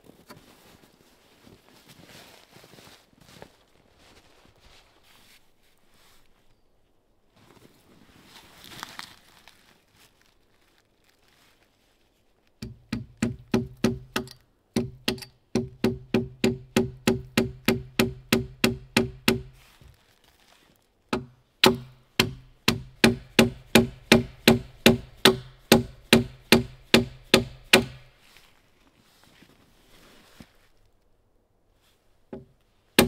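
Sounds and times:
hand tool striking wood: 12.6 - 19.6, 21.1 - 28.1.

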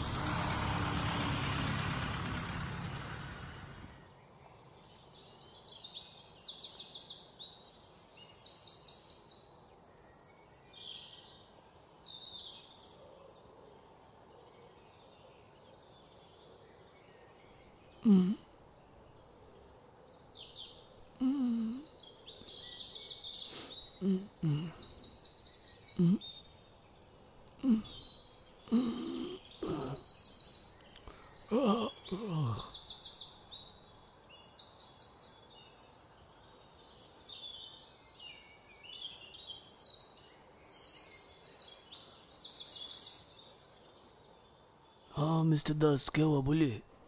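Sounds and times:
broad rushing noise: 0.0 - 4.0
rapidly pulsed chirping calls: 26.0 - 26.2.

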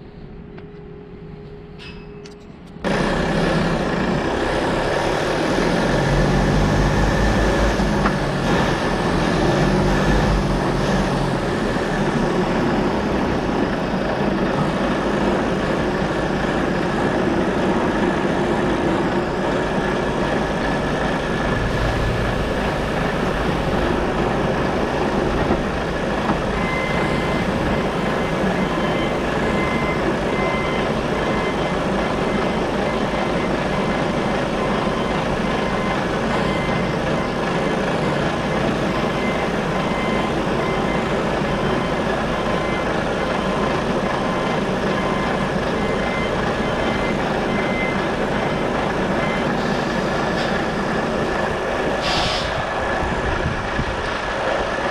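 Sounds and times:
deep pulsing engine rumble: 2.8 - 49.4
truck diesel engine running: 2.8 - 54.9.

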